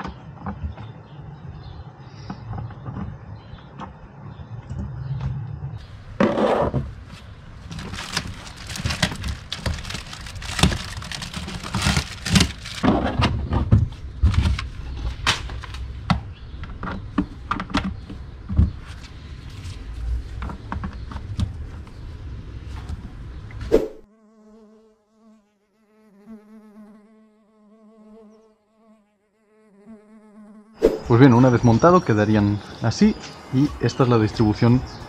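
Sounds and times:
plastic parts clicking and rattling: 7.7 - 13.1.

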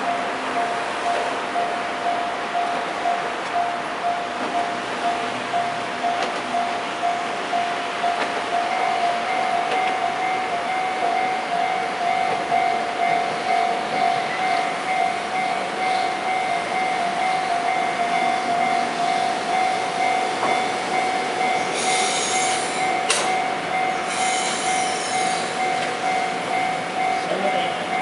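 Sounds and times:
steady ringing tone: 0.0 - 28.0
tram running on track: 0.0 - 28.0
hissing wheel noise: 18.1 - 27.3.

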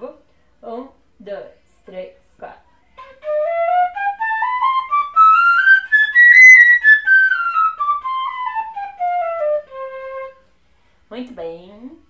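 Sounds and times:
fife playing fast scale: 3.0 - 10.4.

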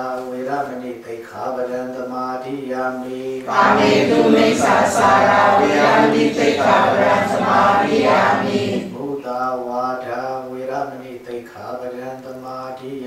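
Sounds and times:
monk chanting: 0.0 - 13.0
many voices chanting: 2.9 - 9.2.

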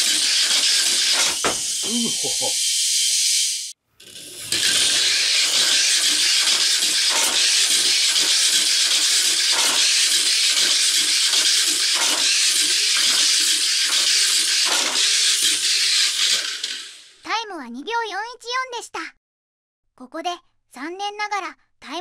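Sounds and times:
toy car hissing rush on track: 0.0 - 17.2.

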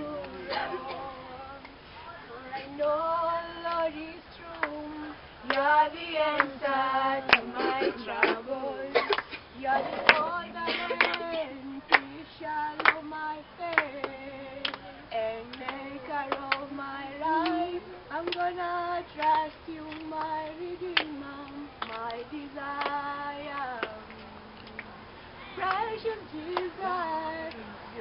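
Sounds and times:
group singing without instruments: 0.0 - 28.0
hand claps: 4.5 - 4.8, 5.4 - 5.7, 6.3 - 6.5, 7.2 - 7.6, 9.0 - 9.4, 10.0 - 14.9, 15.5 - 16.6, 17.4 - 17.6, 18.2 - 18.5, 19.1 - 22.2, 22.8 - 24.9, 25.6 - 25.9, 26.5 - 26.7.

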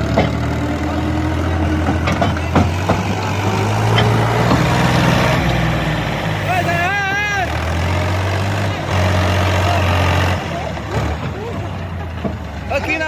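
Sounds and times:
tractor diesel engine running: 0.0 - 13.0
sharp metallic knocks: 1.8 - 4.9.

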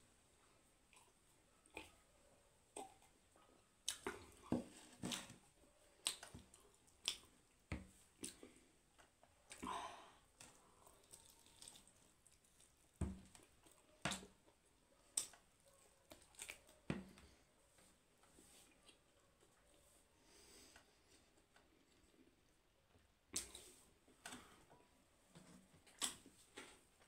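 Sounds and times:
mouth smacks and clicks: 1.7 - 2.0
person chewing: 10.4 - 13.8.

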